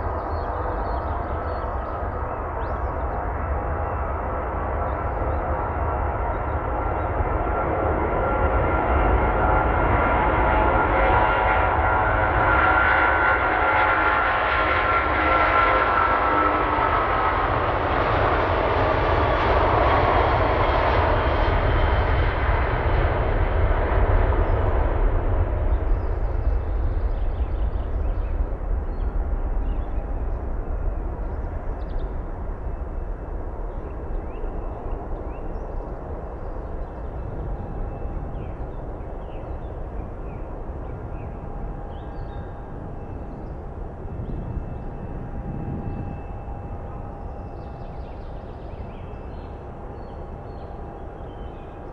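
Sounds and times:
jet engines roaring: 0.0 - 51.9
high fan whine: 21.1 - 51.9.

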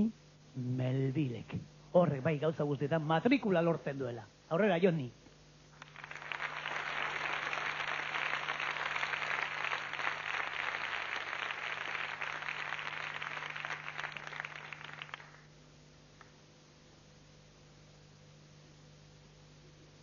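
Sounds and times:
audience applauding: 5.8 - 15.5.

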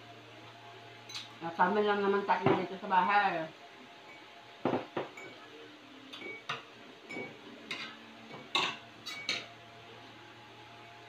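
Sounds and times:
spoons clinking on ceramic plates: 6.1 - 9.5.

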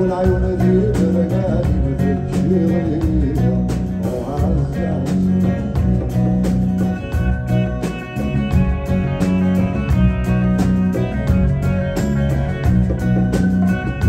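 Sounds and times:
man singing: 0.0 - 5.9
drum kit: 0.0 - 14.0
electric bass: 0.0 - 14.0.

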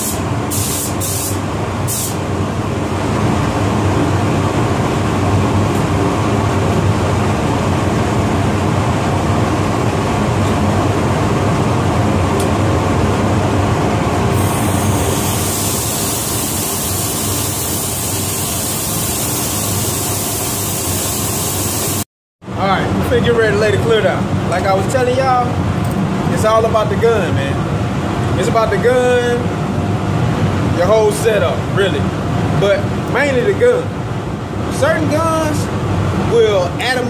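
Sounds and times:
high air hiss: 0.0 - 2.2, 14.3 - 22.0
ventilation fans rumbling: 0.0 - 37.0.

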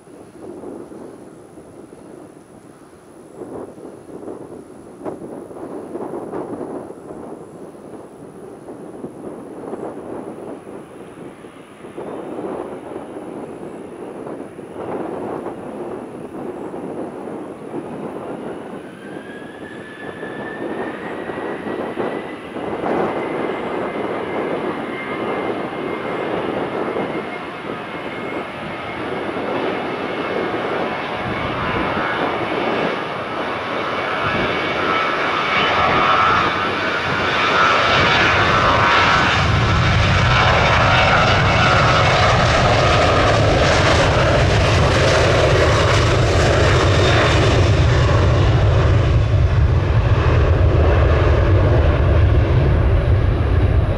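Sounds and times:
high jet whine: 0.0 - 53.9
jet engines at takeoff: 0.0 - 53.9
deep rumble: 20.4 - 53.9.

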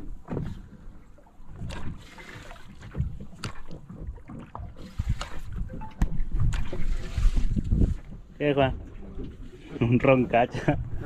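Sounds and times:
light knocks on hull: 0.0 - 6.9
water lapping against boat hull: 0.0 - 11.0.

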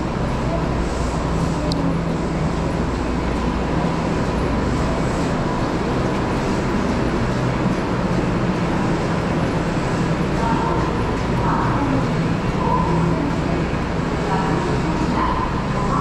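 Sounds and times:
busy railway station rumble and hum: 0.0 - 16.0.

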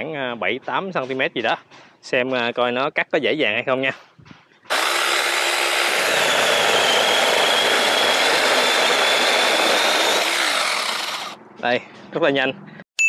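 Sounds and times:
chainsaw cutting branch: 4.7 - 11.4
high motor whine: 4.7 - 11.4.

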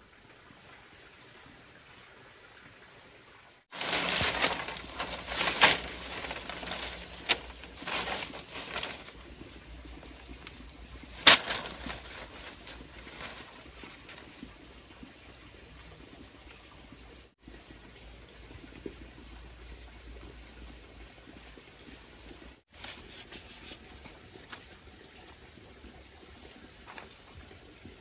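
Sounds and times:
rustling and scraping: 3.7 - 14.5, 22.7 - 25.5, 26.5 - 27.5.

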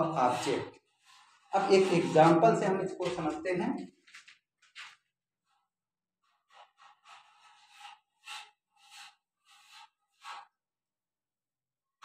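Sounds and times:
marker squeaking on whiteboard: 0.0 - 3.0, 4.8 - 10.7.

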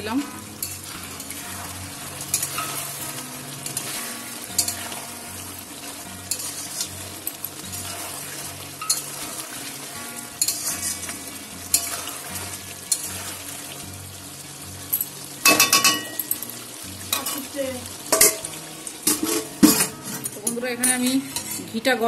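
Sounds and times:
food sizzling in a pan: 0.0 - 22.0
metal spatula scraping a pan: 0.2 - 13.8, 18.1 - 21.8.

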